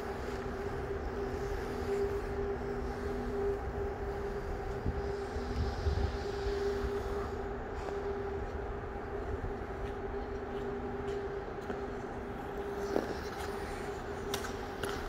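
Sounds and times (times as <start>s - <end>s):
machinery hum: 0.0s - 15.0s.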